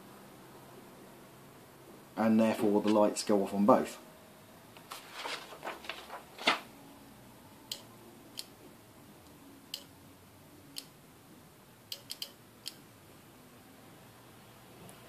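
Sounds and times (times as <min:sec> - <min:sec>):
paper rustling: 0:04.8 - 0:06.7.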